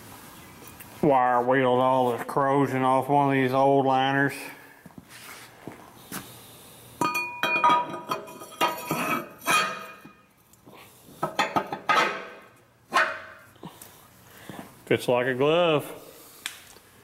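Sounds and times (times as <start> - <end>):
metal liner knocking and scraping: 11.2 - 13.4.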